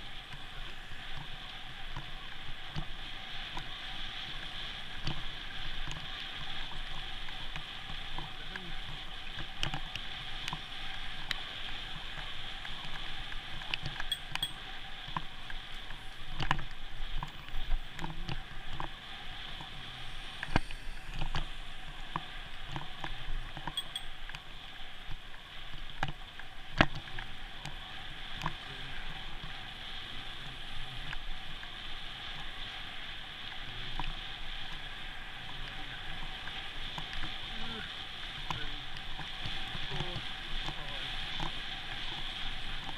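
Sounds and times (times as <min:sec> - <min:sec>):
road and wind noise: 0:00.0 - 0:42.9
bicycle clicks and knocks: 0:13.5 - 0:17.4, 0:23.5 - 0:24.4.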